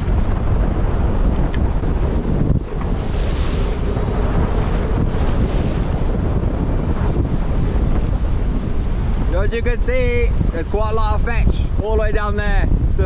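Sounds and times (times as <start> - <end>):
strong wind on microphone: 0.0 - 13.0
waves washing around a bow: 0.0 - 13.0.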